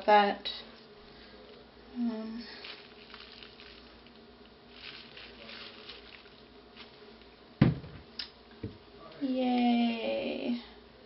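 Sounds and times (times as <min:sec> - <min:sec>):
gloved hands rustling: 0:02.4 - 0:07.4.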